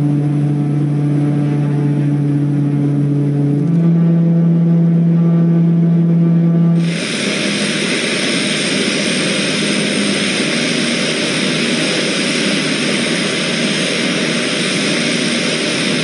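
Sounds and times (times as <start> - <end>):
turboprop engines running: 0.0 - 16.0
faint high whine: 6.4 - 16.0.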